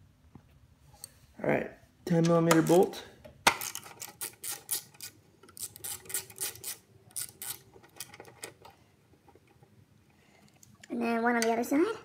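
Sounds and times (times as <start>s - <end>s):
ratchet clicking: 4.0s - 7.6s.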